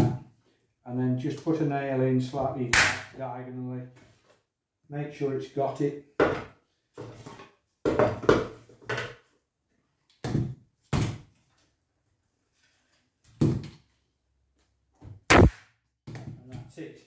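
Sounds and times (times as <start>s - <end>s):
brad nailer firing into wood: 15.3s - 15.6s.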